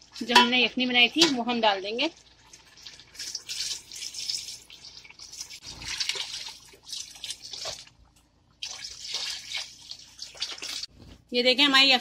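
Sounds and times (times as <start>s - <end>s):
liquid pouring into metal pot: 2.1s - 8.0s, 8.6s - 10.9s.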